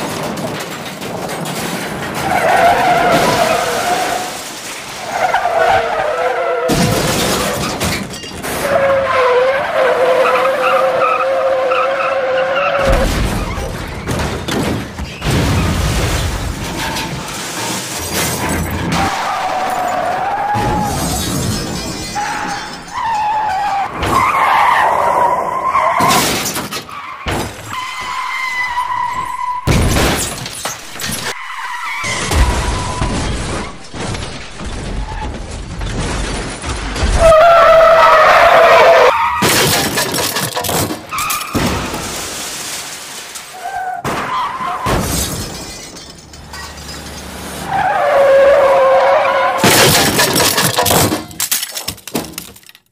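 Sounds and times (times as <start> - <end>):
glass shattering: 6.7 - 9.0, 12.8 - 24.3, 29.1 - 31.4, 39.2 - 47.6, 48.8 - 52.9
heavy crash impacts: 12.8 - 19.9
tyres screeching: 37.2 - 41.6, 46.5 - 51.7.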